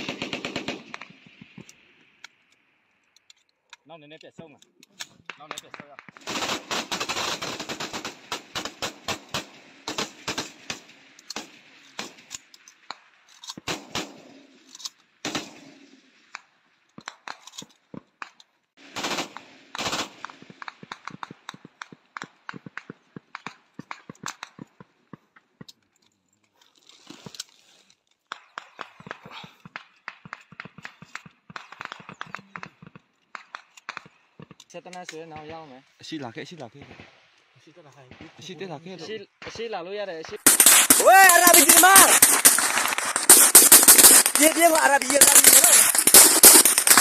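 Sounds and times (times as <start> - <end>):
rifle fire: 0.0 - 1.9, 5.3 - 12.3, 13.6 - 14.6, 15.2 - 16.0, 18.8 - 21.7, 40.3 - 47.0.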